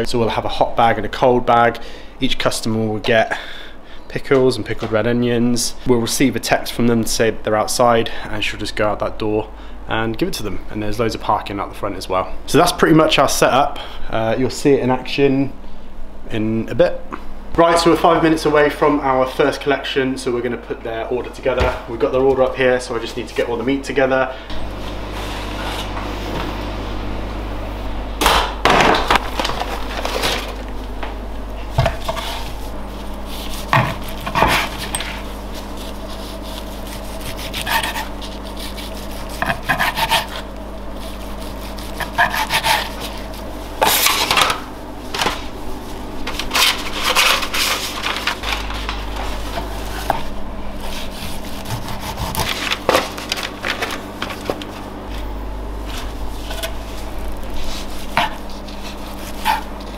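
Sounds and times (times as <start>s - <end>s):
knife scraping wooden board: 31.8s - 32.6s, 33.2s - 44.5s, 50.8s - 53.2s, 57.4s - 59.9s
knife sawing through meat: 33.2s - 44.2s, 50.8s - 52.8s, 57.4s - 59.9s.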